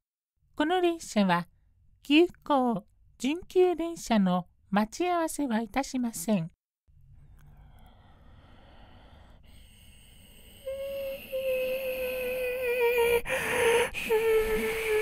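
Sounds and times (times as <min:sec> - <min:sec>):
click: 0:07.3 - 0:07.9
person humming imitating a train: 0:10.5 - 0:15.0.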